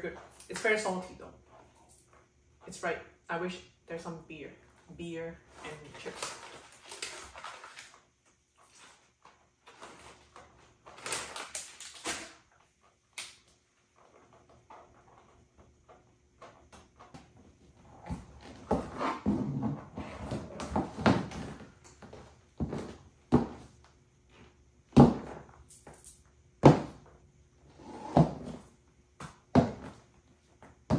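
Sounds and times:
foil snack bag crinkling: 0:06.0 - 0:09.0, 0:10.8 - 0:12.4
shoes knocking on hard floor: 0:18.0 - 0:23.7, 0:24.9 - 0:25.4, 0:26.6 - 0:27.1, 0:29.2 - 0:30.1.

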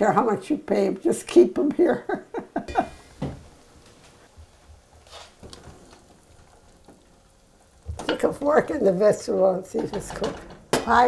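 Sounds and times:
woman's voice: 0:00.0 - 0:02.2, 0:08.1 - 0:11.0
wooden spoon stirring in pot: 0:02.7 - 0:11.0.

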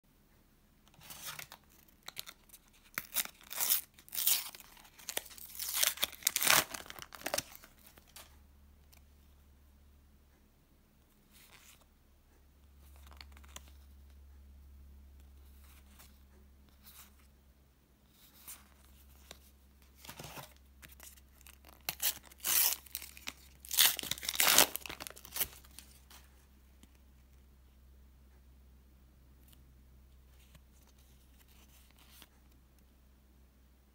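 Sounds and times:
paper packet tearing and crinkling: 0:01.0 - 0:08.1, 0:20.0 - 0:26.1.

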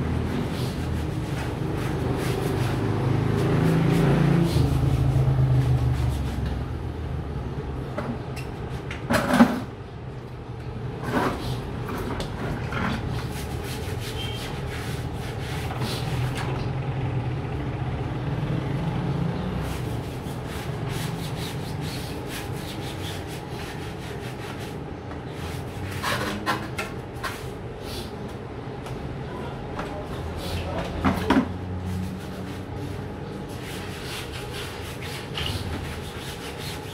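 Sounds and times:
scrubbing bike tyre: 0:00.0 - 0:06.7, 0:11.1 - 0:16.4, 0:19.6 - 0:26.4, 0:31.5 - 0:36.9.

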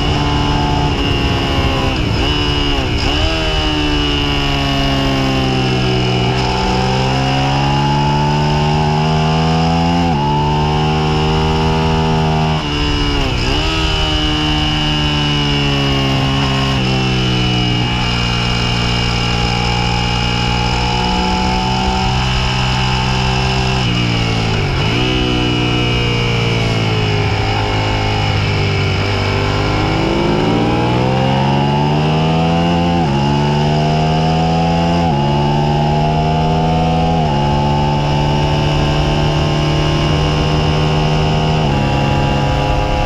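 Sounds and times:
wind rush: 0:00.0 - 0:07.3
motorcycle engine revving: 0:00.0 - 0:43.0.

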